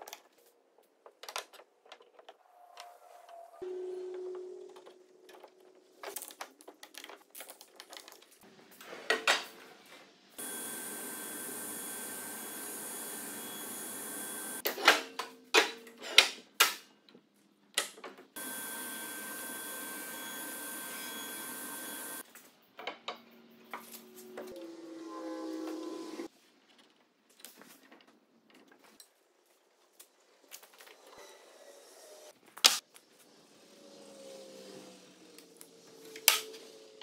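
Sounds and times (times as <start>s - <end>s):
shop machine running: 10.4s - 14.7s, 18.4s - 22.2s.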